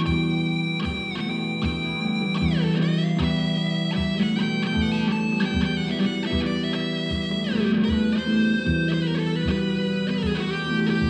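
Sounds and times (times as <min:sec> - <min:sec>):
steady low beat: 0:00.0 - 0:11.0.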